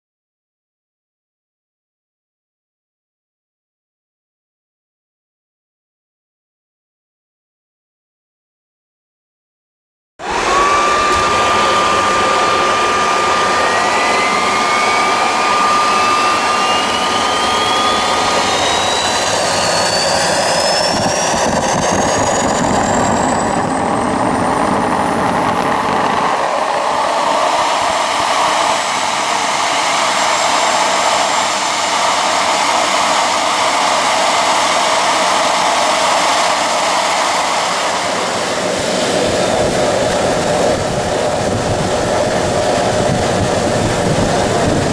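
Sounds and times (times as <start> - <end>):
turbojet engine whine rising: 10.2 - 44.9.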